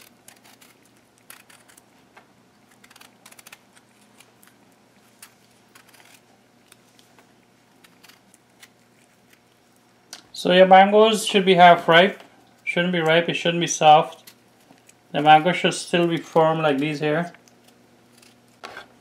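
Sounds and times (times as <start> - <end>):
knife peeling mango skin: 0.0 - 1.9, 2.6 - 9.6.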